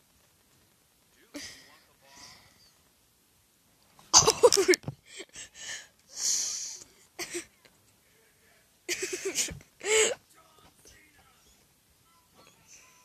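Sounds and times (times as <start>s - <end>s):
breathy hissing noises: 5.0s - 8.3s.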